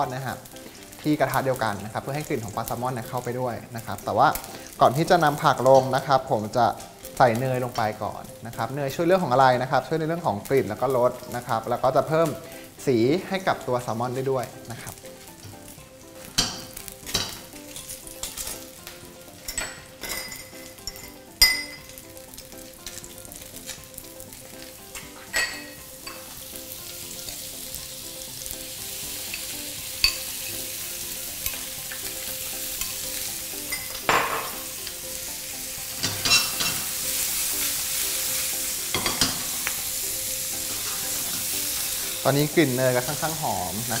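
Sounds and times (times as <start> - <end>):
fish sizzling in a pan: 0.0 - 44.0
utensils knocking against pan: 16.3 - 17.5, 33.7 - 34.7, 36.0 - 36.9, 38.9 - 39.7.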